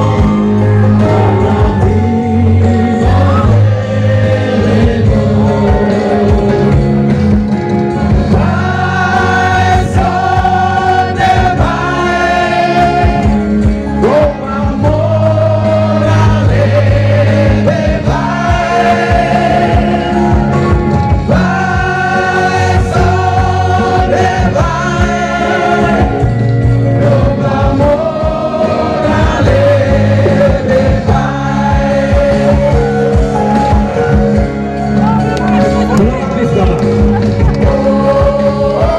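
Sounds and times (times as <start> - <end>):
men singing into microphones: 0.0 - 34.5, 35.2 - 38.9
live band with electric guitar: 0.0 - 38.9.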